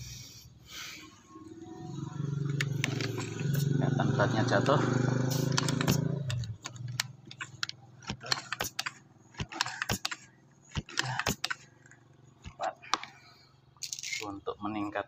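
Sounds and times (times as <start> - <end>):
air rifle clicks and taps: 5.3 - 11.7.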